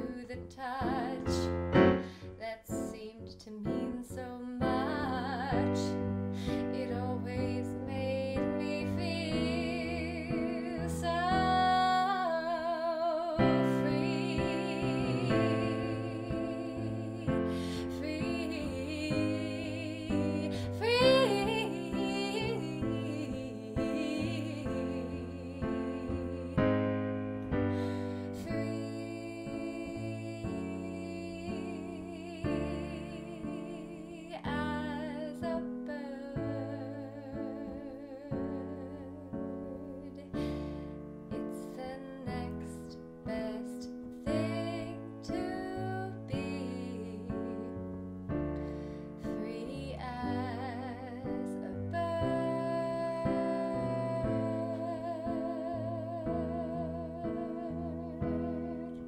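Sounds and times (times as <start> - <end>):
woman singing wordlessly: 0.0 - 40.6, 41.3 - 47.9, 49.2 - 59.0.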